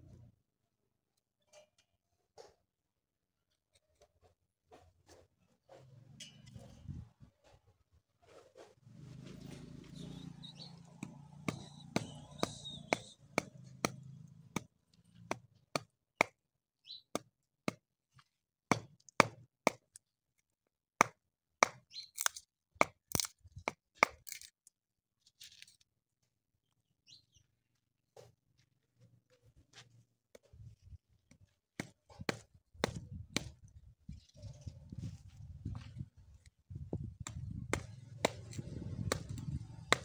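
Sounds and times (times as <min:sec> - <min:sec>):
chisel knocking into wood: 0:11.0 - 0:14.7, 0:18.7 - 0:19.8
wood cracking: 0:23.0 - 0:23.4.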